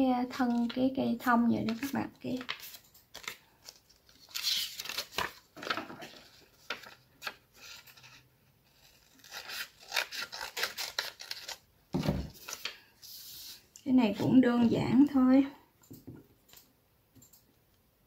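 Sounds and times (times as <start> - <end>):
paper rustling: 1.6 - 13.6
scissors snipping paper: 8.9 - 11.6.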